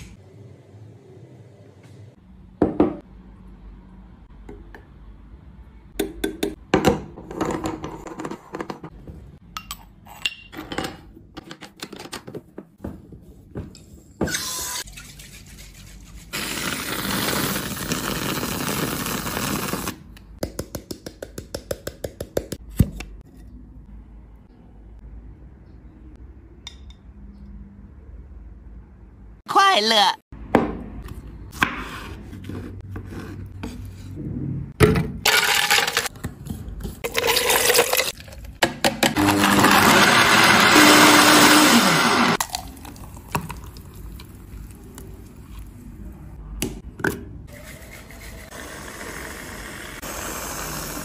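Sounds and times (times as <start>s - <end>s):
gas hissing into a bottle: 48.5s - 51.0s.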